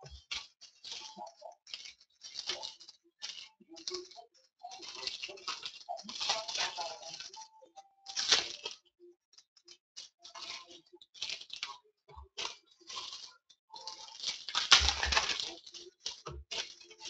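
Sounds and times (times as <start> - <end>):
wrappers crinkling and tearing: 0.0 - 17.0.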